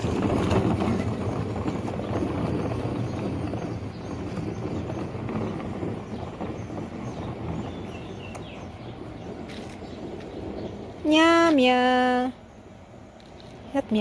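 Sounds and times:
plastic wheels rolling over gravel: 0:00.0 - 0:12.3.

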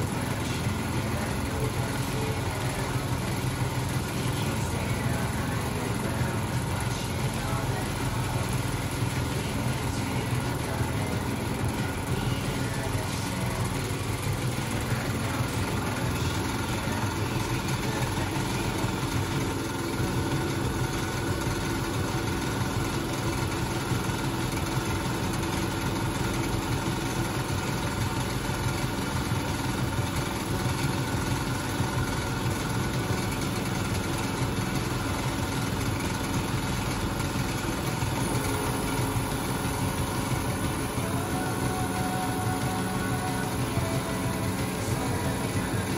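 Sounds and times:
tractor engine idling: 0:00.0 - 0:45.9.

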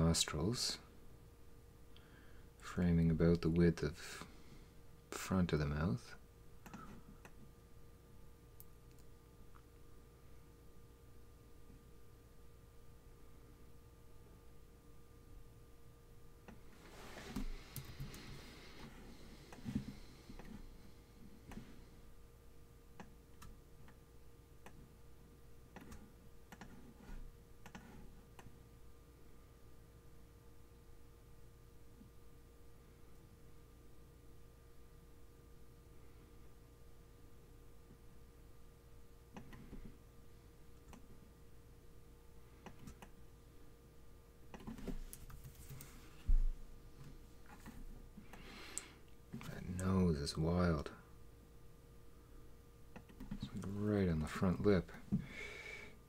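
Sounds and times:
faint steady hum: 0:00.0 - 0:56.0
computer mouse clicks: 0:06.6 - 0:07.4, 0:25.7 - 0:26.8, 0:27.6 - 0:28.5, 0:44.5 - 0:45.3.

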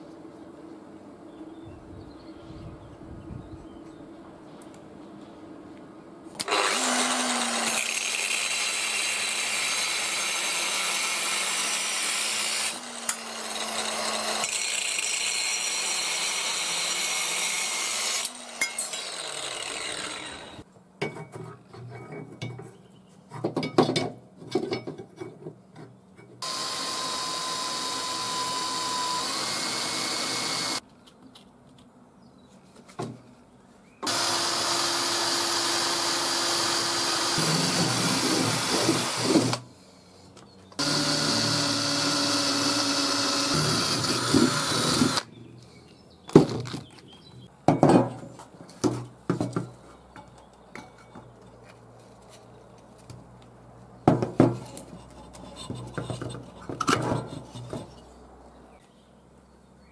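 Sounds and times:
angle grinder cutting metal: 0:06.4 - 0:20.6, 0:26.4 - 0:30.8, 0:34.0 - 0:39.6, 0:40.8 - 0:45.3
metal clanks and knocks: 0:21.0 - 0:26.4, 0:47.7 - 0:51.4.

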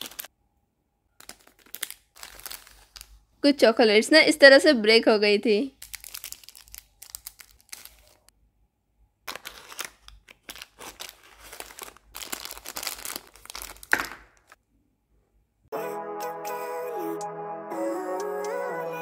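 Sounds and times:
foil and plastic wrappers crinkling: 0:00.0 - 0:00.3, 0:01.2 - 0:03.3, 0:05.7 - 0:08.3, 0:09.2 - 0:14.6.

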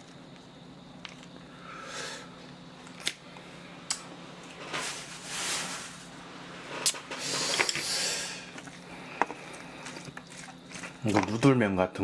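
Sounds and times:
short rustling: 0:04.6 - 0:06.8
eating noises: 0:06.8 - 0:11.5.

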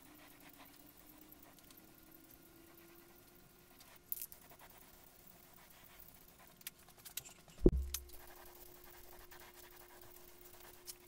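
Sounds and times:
dull thump: 0:07.6 - 0:08.0.

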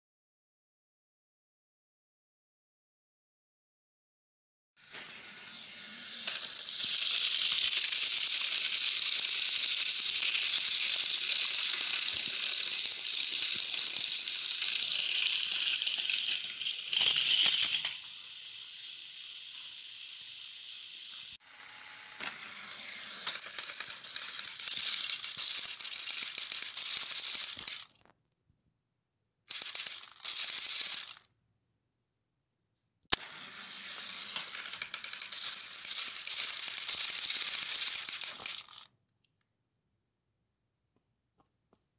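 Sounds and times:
toy train motors whirring: 0:04.8 - 0:28.1, 0:29.5 - 0:31.3, 0:33.1 - 0:39.0.

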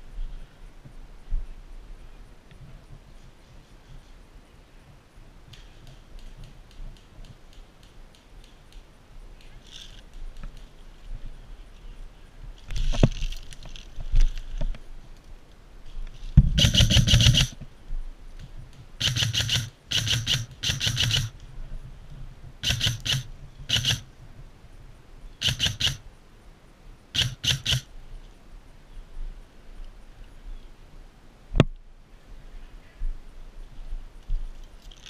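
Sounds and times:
airsoft gun full-auto bursts: 0:16.5 - 0:17.6, 0:19.0 - 0:21.4, 0:22.6 - 0:24.1, 0:25.4 - 0:26.0, 0:27.2 - 0:27.9.

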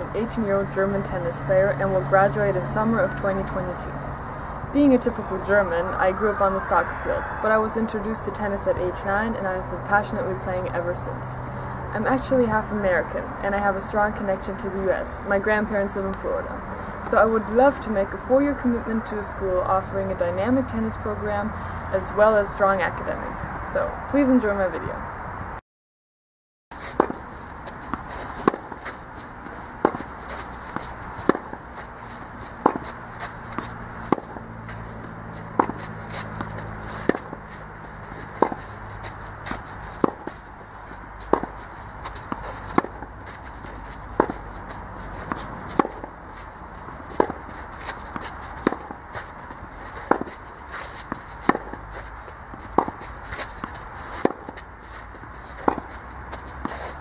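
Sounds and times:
rackets hitting tennis ball: 0:26.8 - 0:57.0.

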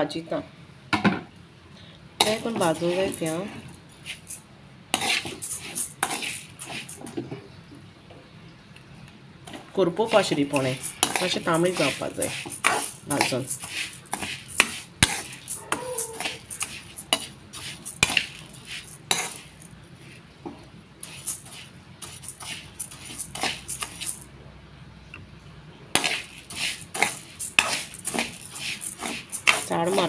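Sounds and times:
rice grains rattling in pan: 0:02.2 - 0:04.4, 0:05.0 - 0:07.1, 0:09.5 - 0:19.8, 0:21.0 - 0:24.2, 0:26.0 - 0:30.0
metal spatula scraping pan: 0:02.2 - 0:07.1, 0:09.5 - 0:19.7, 0:26.0 - 0:30.0.

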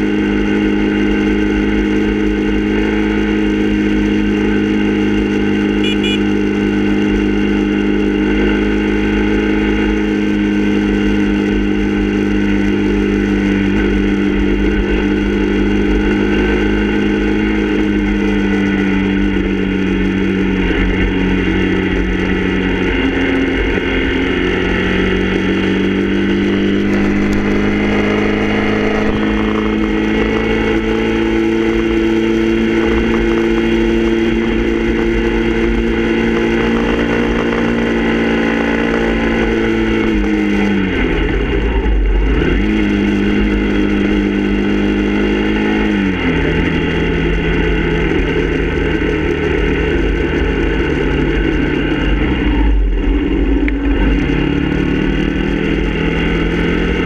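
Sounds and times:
motorcycle engine running: 0:00.0 - 0:57.0
wind rumble: 0:17.1 - 0:45.0, 0:46.0 - 0:57.0.

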